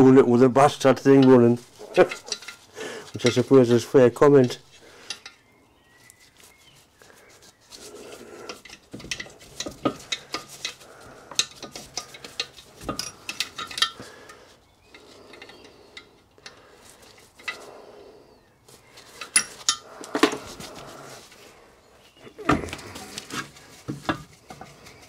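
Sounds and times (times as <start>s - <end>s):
metal tools clinking on metal: 0.6s - 5.4s, 8.4s - 17.7s, 19.0s - 20.5s.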